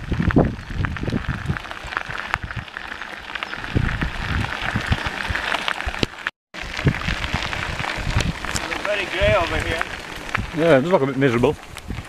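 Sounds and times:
wind buffeting microphone: 0:00.0 - 0:12.0
crackle of small clicks: 0:04.6 - 0:10.6, 0:11.6 - 0:12.0.

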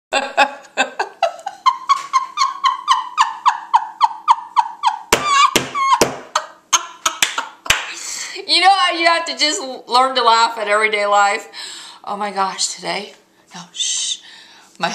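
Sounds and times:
woman laughing hard: 0:00.1 - 0:07.7.

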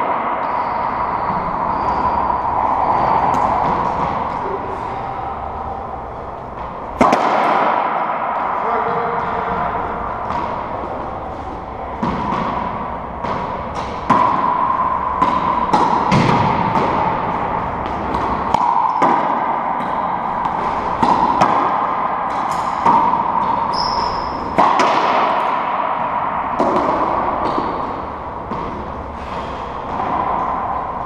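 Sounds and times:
racquetball hits echoing: 0:00.0 - 0:31.0
steady hum: 0:00.0 - 0:31.0
shoe squeak on floor: 0:23.7 - 0:24.4.

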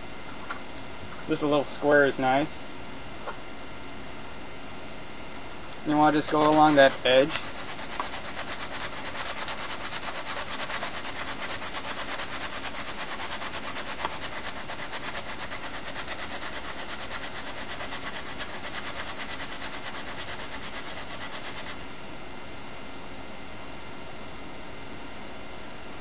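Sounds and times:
sandpaper rasping on plastic: 0:05.9 - 0:21.8.

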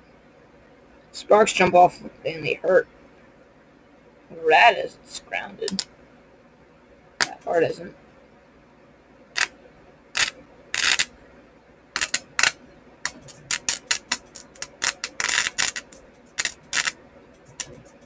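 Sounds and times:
electric sparks crackling: 0:09.4 - 0:09.6, 0:10.2 - 0:11.1, 0:12.0 - 0:18.0.

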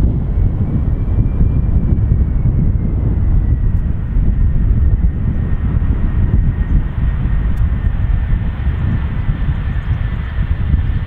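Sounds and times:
engine whine falling in pitch: 0:00.0 - 0:11.0
jet engines rumbling: 0:00.0 - 0:11.0.

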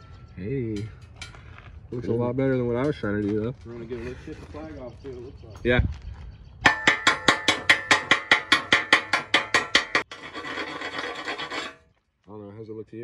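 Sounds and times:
wire brush scrubbing metal: 0:06.7 - 0:11.8.

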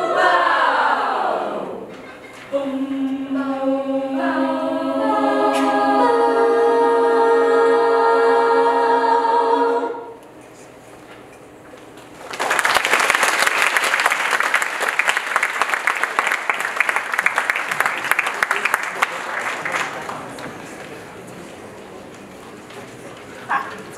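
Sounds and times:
women's choir singing: 0:00.0 - 0:01.9, 0:02.5 - 0:10.2
audience applause: 0:12.2 - 0:21.1.

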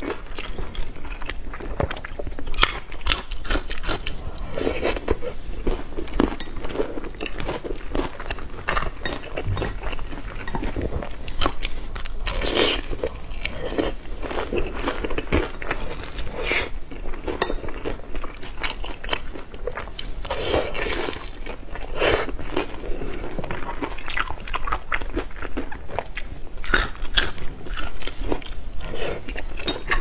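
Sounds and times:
person chewing and biting food: 0:00.0 - 0:22.8.

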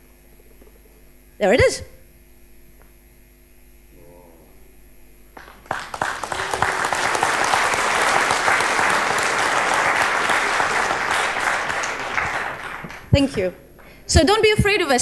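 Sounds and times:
audience applauding: 0:05.4 - 0:14.0.

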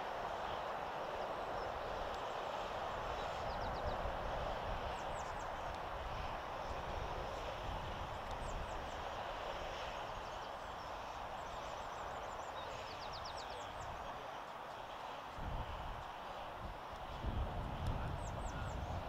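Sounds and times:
outdoor background hiss: 0:00.0 - 0:19.0
small birds chirping: 0:03.0 - 0:04.1, 0:08.2 - 0:14.8.

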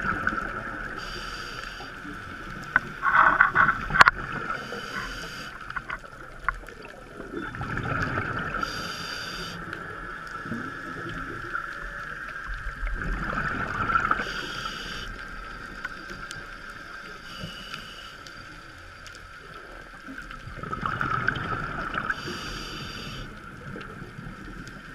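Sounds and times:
exhaled bubbles rushing underwater: 0:00.0 - 0:01.2, 0:02.0 - 0:17.1, 0:19.4 - 0:24.9
steady background hiss: 0:00.5 - 0:05.9, 0:08.4 - 0:12.2, 0:14.0 - 0:20.1, 0:21.9 - 0:24.9
regulator breathing hisses: 0:00.9 - 0:02.4, 0:04.5 - 0:05.7, 0:08.6 - 0:09.7, 0:14.2 - 0:15.2, 0:17.1 - 0:18.6, 0:22.1 - 0:23.4.

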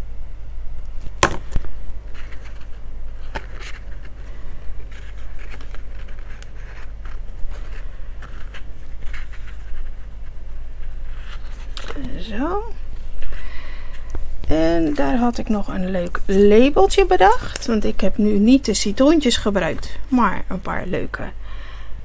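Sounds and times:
steady low hum: 0:00.0 - 0:22.0
sharp taps on card: 0:01.2 - 0:01.6
paper rustling and scraping: 0:01.4 - 0:13.5.

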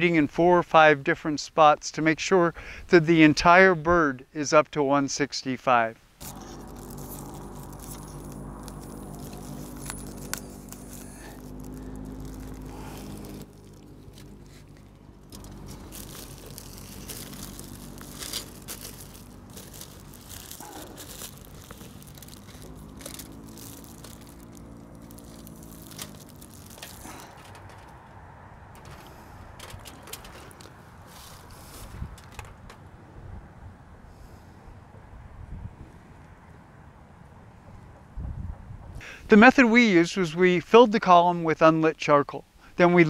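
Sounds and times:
low steady drone: 0:06.2 - 0:27.3
plastic bag crinkling: 0:06.2 - 0:27.9.

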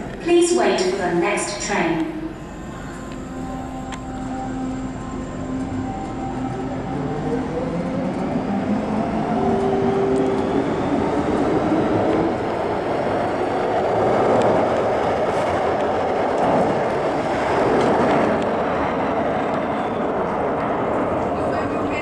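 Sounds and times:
train wheels rumbling on rail: 0:05.0 - 0:22.0.

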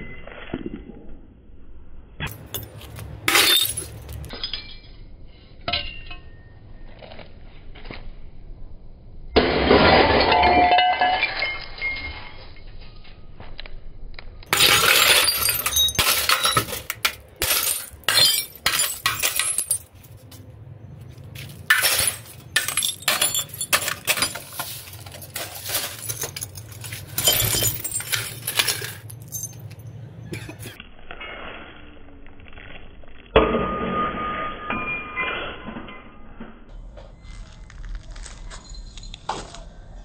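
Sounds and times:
glass and plastic breaking: 0:02.2 - 0:04.8, 0:09.4 - 0:12.3, 0:14.5 - 0:20.0, 0:21.4 - 0:29.8
glass shards clinking: 0:02.3 - 0:04.9, 0:14.5 - 0:20.0, 0:21.6 - 0:30.7.

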